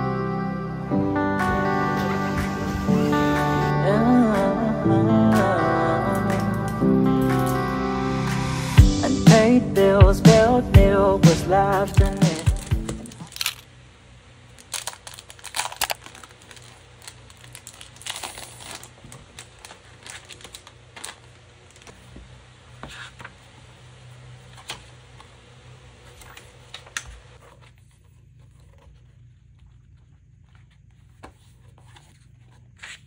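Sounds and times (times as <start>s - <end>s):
plastic wrap crinkling and tearing: 11.9s - 13.7s, 14.5s - 22.0s.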